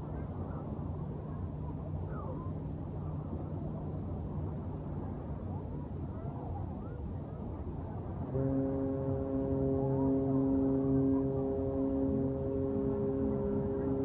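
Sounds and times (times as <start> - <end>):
faint hum: 0.0 - 14.0
distant voices: 0.3 - 14.0
ship's horn blast: 8.2 - 14.0.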